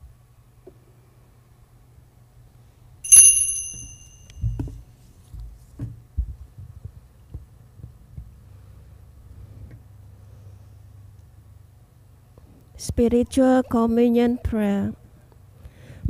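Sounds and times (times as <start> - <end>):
ringing metallic clink: 3.1 - 4.3.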